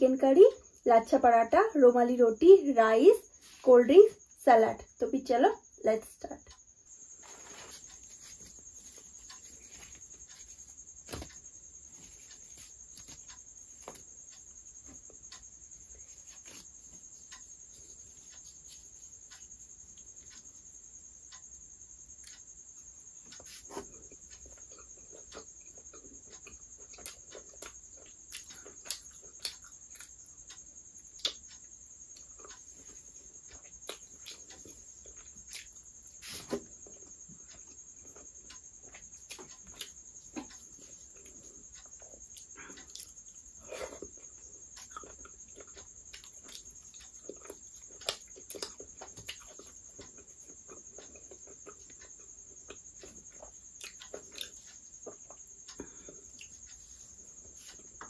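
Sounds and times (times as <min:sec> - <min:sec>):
chewing and lip smacking: 0:24.0 - 0:30.1, 0:33.6 - 0:35.8, 0:41.2 - 0:55.4.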